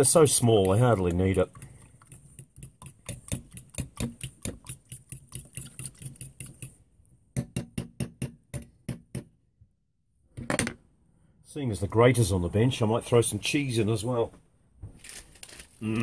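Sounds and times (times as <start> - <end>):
fork beating eggs in metal pan: 0.0 - 6.8.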